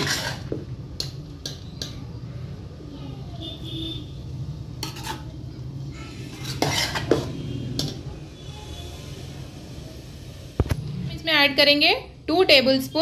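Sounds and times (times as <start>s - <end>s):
metal spoon scraping a metal pot: 0.0s - 0.7s, 4.7s - 5.4s, 6.0s - 8.0s.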